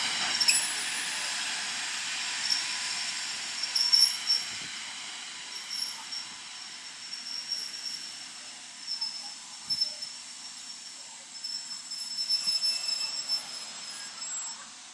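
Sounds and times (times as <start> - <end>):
wheel and brake squealing: 3.6 - 4.5, 5.5 - 14.9.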